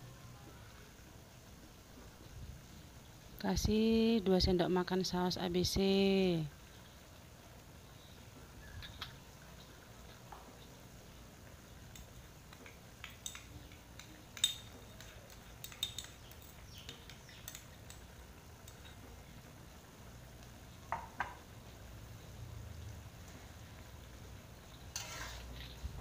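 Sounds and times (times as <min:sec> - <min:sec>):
spatula clinking on cup and wok: 0:13.0 - 0:17.6.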